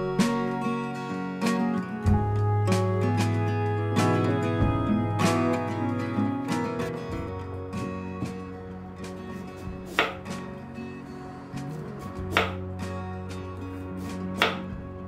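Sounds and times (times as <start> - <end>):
soft background music: 0.0 - 15.0
knife chopping on wooden board: 9.8 - 10.3, 11.6 - 12.6, 14.1 - 14.8.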